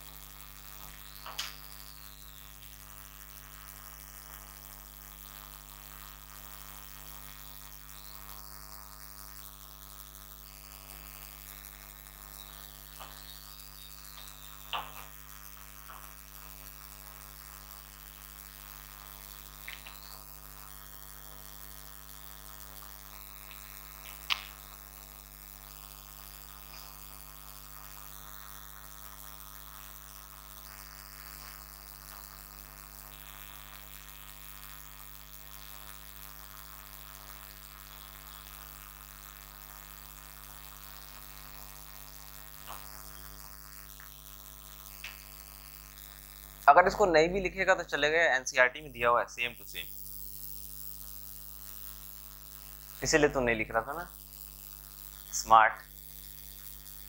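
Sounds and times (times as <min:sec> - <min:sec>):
electrical mains hum: 0:00.0 - 0:57.0.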